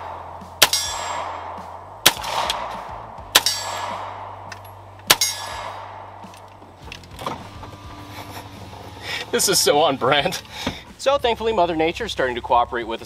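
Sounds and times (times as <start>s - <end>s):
pistol shots with echo: 0.0s - 6.6s.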